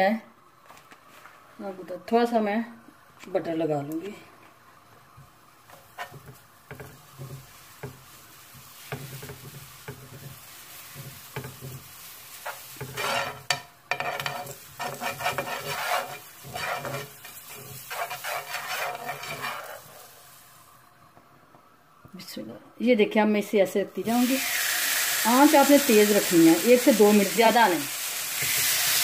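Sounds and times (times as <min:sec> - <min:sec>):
butter sizzling in a pan: 0:04.5 - 0:21.0, 0:24.0 - 0:29.0
wooden spoon scraping a pan: 0:05.7 - 0:20.4.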